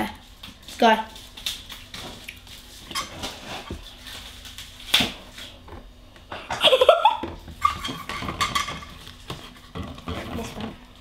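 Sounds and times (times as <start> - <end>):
girl laughing: 6.5 - 7.3.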